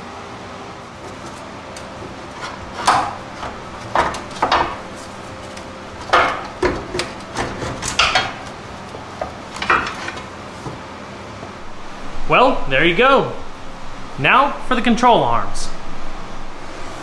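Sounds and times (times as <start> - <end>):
metal clanks and knocks: 1.0 - 11.6.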